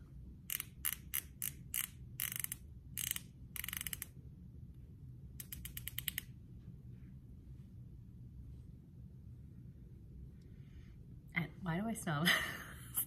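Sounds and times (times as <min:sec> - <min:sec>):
lip balm tube ratcheting clicks: 0:00.5 - 0:04.2, 0:05.4 - 0:06.3.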